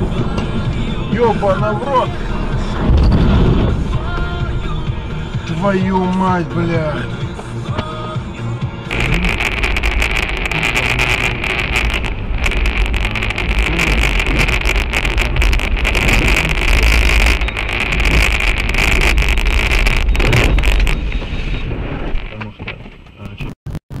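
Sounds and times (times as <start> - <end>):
engine and tyre rumble: 0.0 - 24.0.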